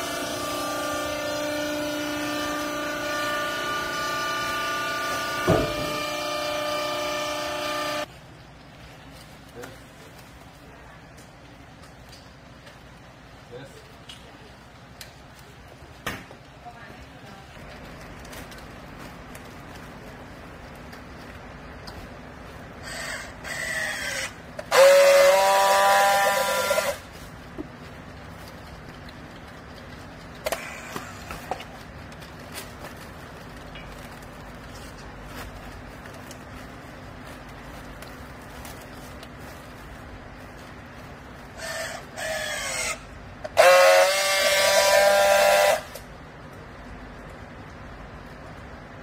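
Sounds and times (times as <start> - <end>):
strapping tool motor whirring: 0.0 - 8.1, 22.8 - 27.1
strapping tool steady whine: 0.0 - 8.1, 22.8 - 27.7, 30.3 - 36.4, 41.6 - 46.1.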